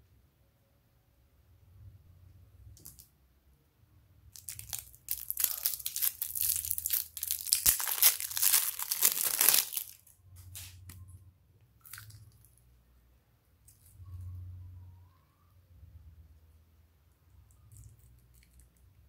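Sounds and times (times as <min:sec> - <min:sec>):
plastic wrap crinkling and tearing: 0:04.4 - 0:10.9.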